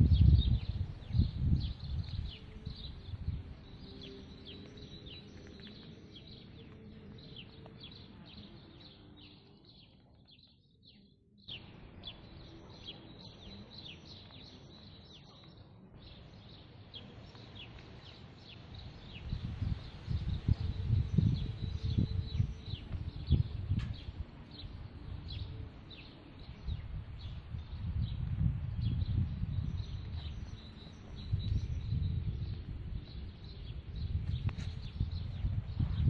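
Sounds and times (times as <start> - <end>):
low rumble on microphone: 0.0 - 5.7, 18.7 - 36.0
small birds chirping: 0.0 - 36.0.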